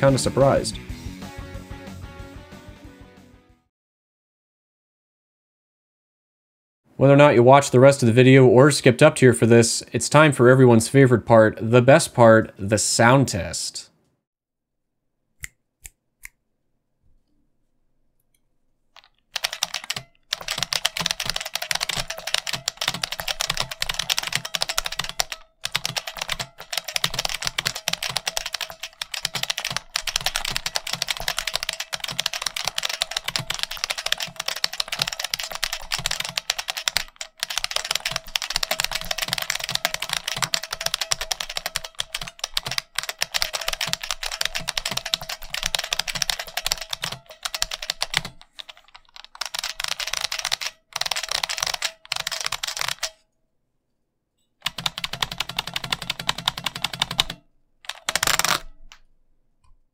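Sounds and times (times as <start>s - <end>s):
keyboard typing with sharp clicks: 19.0s - 53.2s, 54.6s - 58.7s.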